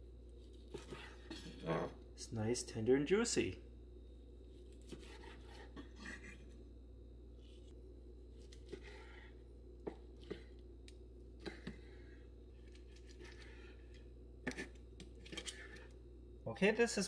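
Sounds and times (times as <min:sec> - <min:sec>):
low steady hum: 0:00.0 - 0:17.0
knife slicing steak: 0:00.6 - 0:01.6, 0:04.8 - 0:06.3.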